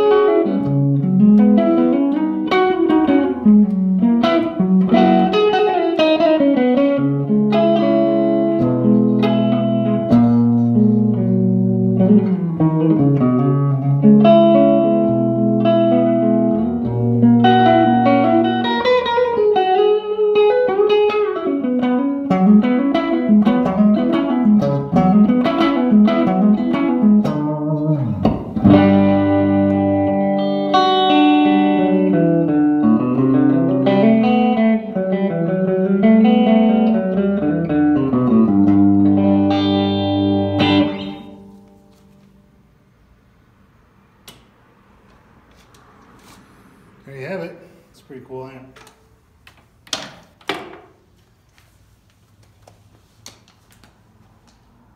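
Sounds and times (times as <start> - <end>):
electric guitar chords and runs: 0.0 - 42.3.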